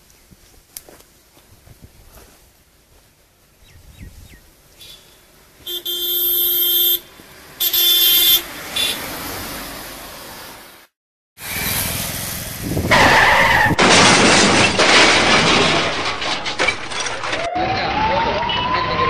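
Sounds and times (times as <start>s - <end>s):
car passing with road noise: 4.8s - 13.7s
car horn blasts: 5.6s - 9.0s.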